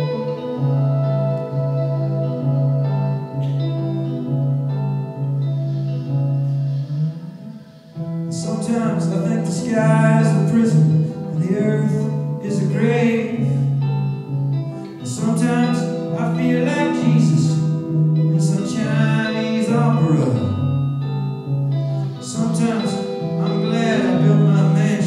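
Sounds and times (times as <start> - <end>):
sustained low notes: 0.0 - 12.8
guitar: 0.0 - 25.0
man singing: 8.3 - 13.8, 15.0 - 20.7, 22.1 - 25.0.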